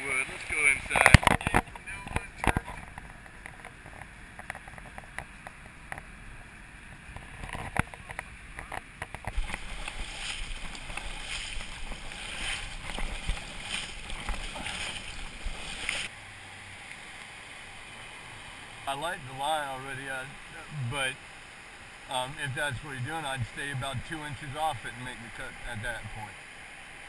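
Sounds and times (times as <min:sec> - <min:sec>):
sea water splashing over log: 0:09.2 - 0:26.4.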